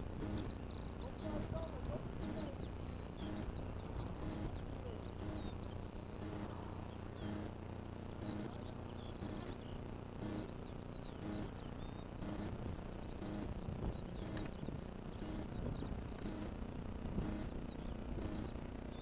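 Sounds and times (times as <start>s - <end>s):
insect chirping in hissy bursts: 0.0s - 18.8s
small bird chirps: 0.1s - 16.6s, 17.2s - 19.0s
wind rumble on microphone: 12.5s - 18.4s.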